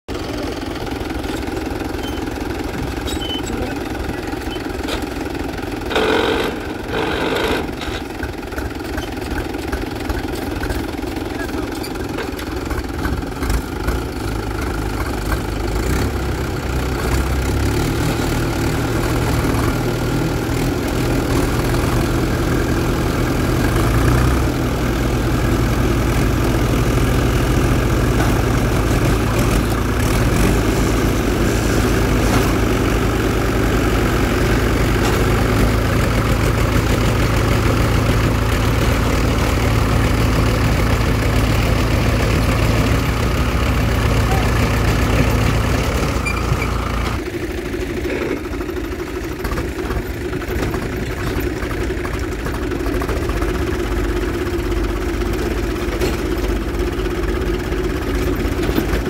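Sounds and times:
diesel tractor engines under load: 0:00.1 - 0:59.0.

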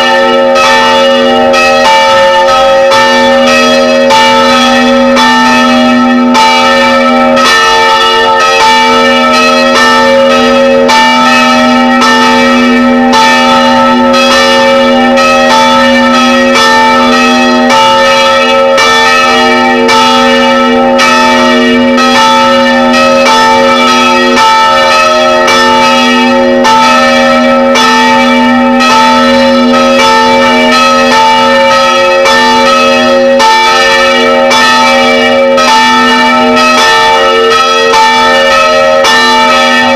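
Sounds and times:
church bells pealing: 0:00.0 - 0:39.9.

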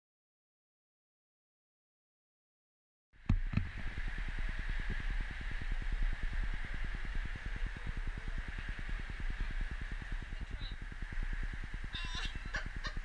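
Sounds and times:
engine running with low pulsing: 0:03.2 - 0:13.0
steady hiss: 0:03.2 - 0:13.0.

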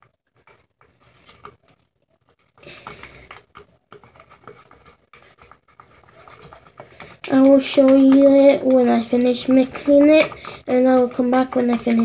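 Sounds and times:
stick scraping slime in metal bowl: 0:00.0 - 0:12.0.

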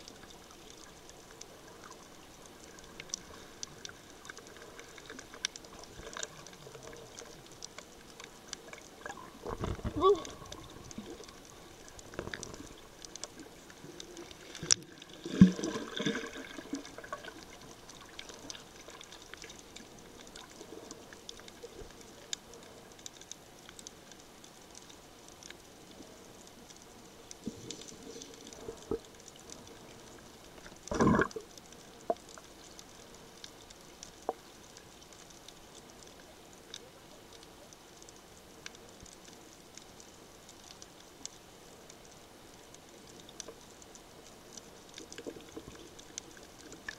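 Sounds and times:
muffled underwater crackle: 0:00.0 - 0:46.9
bursts of water noise: 0:02.4 - 0:22.8, 0:27.3 - 0:32.6.

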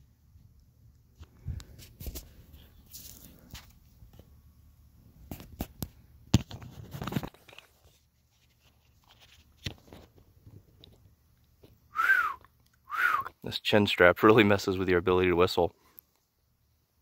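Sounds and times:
crunching rustle: 0:01.6 - 0:04.0.

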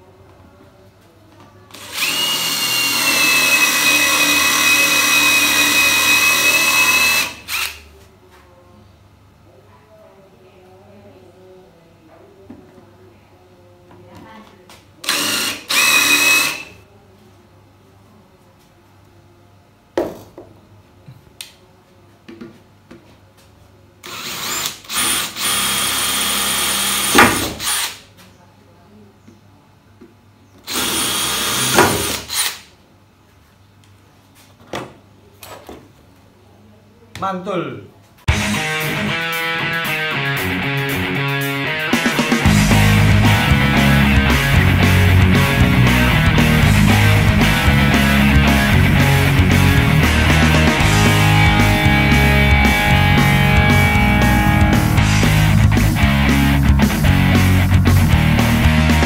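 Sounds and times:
cordless drill boring into wood: 0:01.7 - 0:07.8, 0:15.0 - 0:16.7, 0:24.1 - 0:28.0, 0:30.7 - 0:32.6
impact driver whining: 0:01.7 - 0:07.8, 0:15.0 - 0:16.7, 0:24.1 - 0:28.0, 0:30.7 - 0:32.6.

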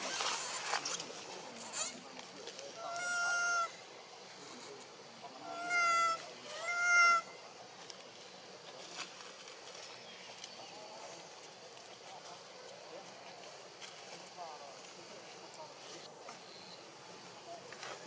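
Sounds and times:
monkey coo calls: 0:02.7 - 0:03.9, 0:05.3 - 0:07.4.

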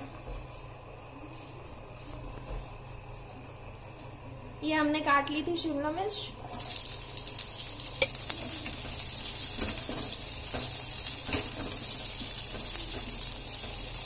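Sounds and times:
vegetables sizzling in oil: 0:06.5 - 0:14.0.

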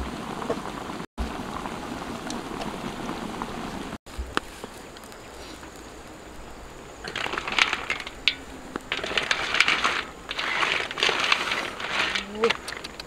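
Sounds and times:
snail shells clattering in wok: 0:07.0 - 0:13.0.

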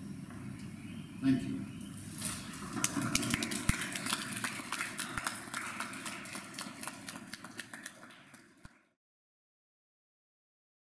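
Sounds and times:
audience applauding: 0:02.4 - 0:09.0.

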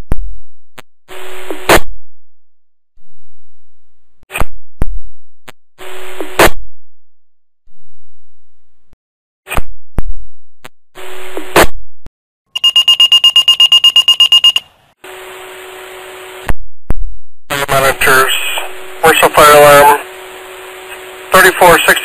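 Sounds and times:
rapid high-pitched pager beeping: 0:12.5 - 0:14.7
radio hiss: 0:17.5 - 0:22.0.

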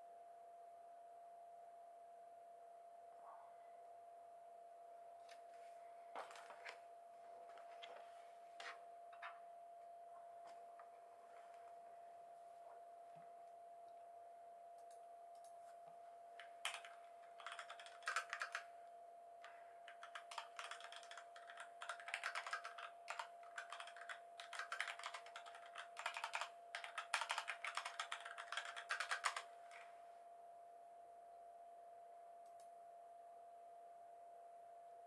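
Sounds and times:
computer keyboard typing: 0:16.3 - 0:18.8, 0:19.4 - 0:29.9.

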